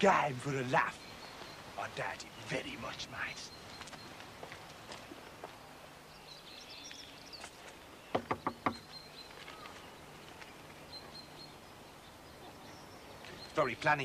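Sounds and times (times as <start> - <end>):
faint bird chirps: 5.0 - 14.0
knocks on a door: 8.1 - 8.8.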